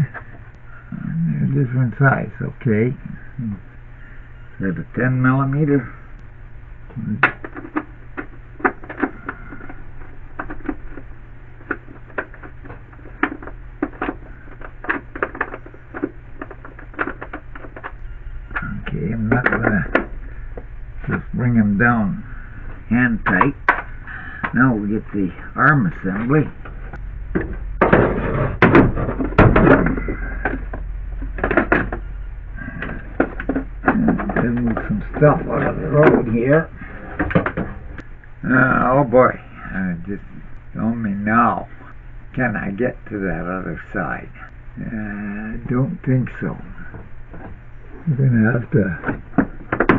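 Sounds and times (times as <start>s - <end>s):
steady low hum: 0.0s - 49.9s
bolts clicking and tapping: 26.0s - 38.4s.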